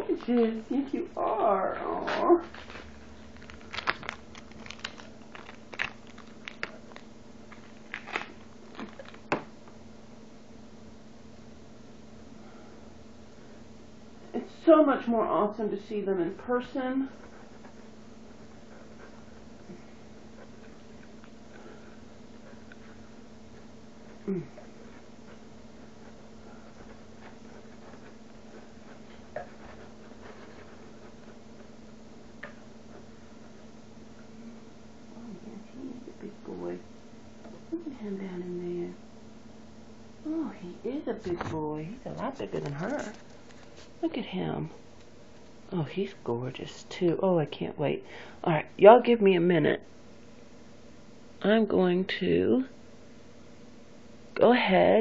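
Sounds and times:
steady low hum: 0:00.0 - 0:55.0
plastic packaging crinkling: 0:02.5 - 0:09.4, 0:42.0 - 0:44.0.

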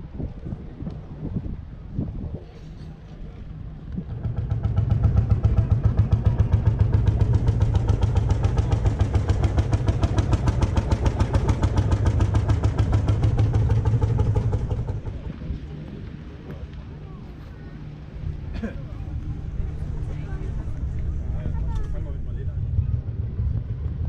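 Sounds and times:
tractor engine pounding: 0:03.6 - 0:16.4, 0:17.8 - 0:24.0.

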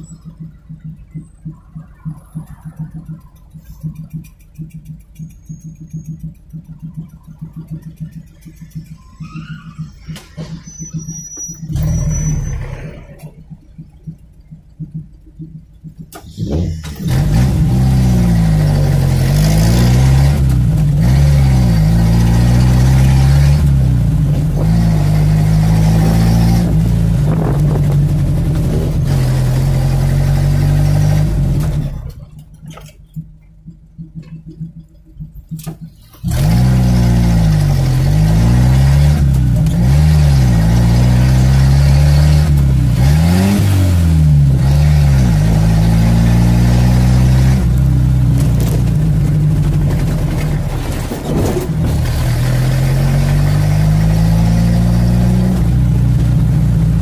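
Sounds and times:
car engine accelerating: 0:00.0 - 0:57.0.

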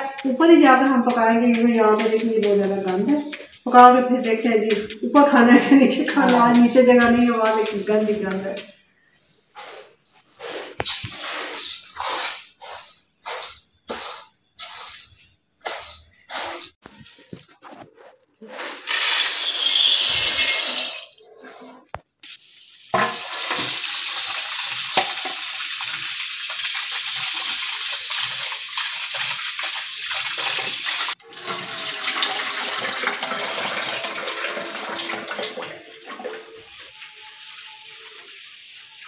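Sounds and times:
tap water running into bowl: 0:23.0 - 0:37.1.

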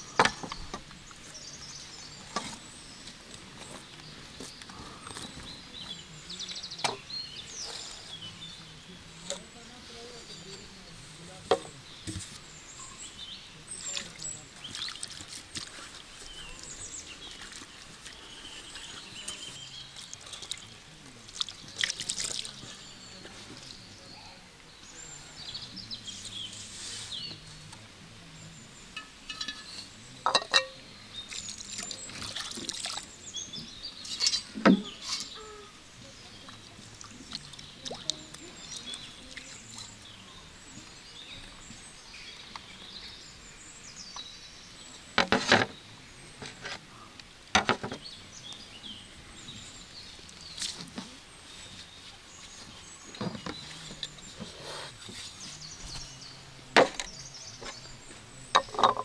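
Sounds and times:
birds chirping: 0:00.0 - 0:59.0
utensils knocking and clinking: 0:29.0 - 0:30.8, 0:58.6 - 0:59.0.

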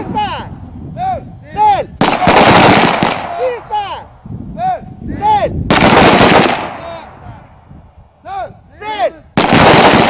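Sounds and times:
shouted commands: 0:00.0 - 0:02.4, 0:03.1 - 0:05.6, 0:08.2 - 0:09.4
rifle volley: 0:02.0 - 0:04.0, 0:05.7 - 0:07.5, 0:08.8 - 0:10.0.

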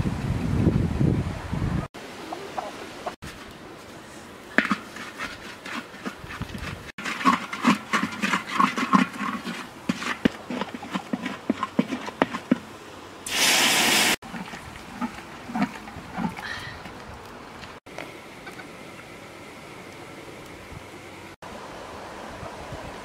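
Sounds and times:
loud sizzling hiss: 0:13.2 - 0:14.2.

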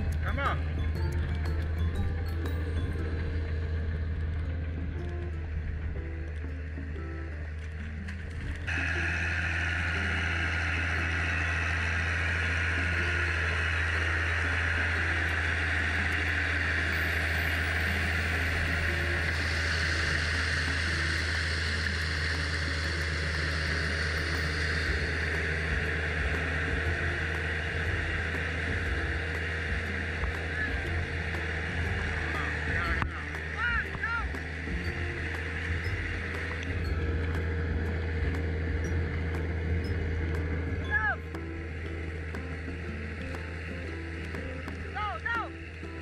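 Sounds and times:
tractor diesel engine running: 0:08.5 - 0:46.0
steady hiss: 0:08.7 - 0:33.3.

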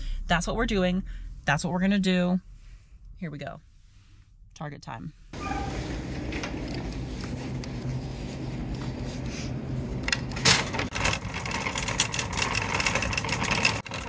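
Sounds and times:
steady low hum: 0:00.0 - 0:10.9
shopping cart rattling over pavement: 0:10.3 - 0:14.0.

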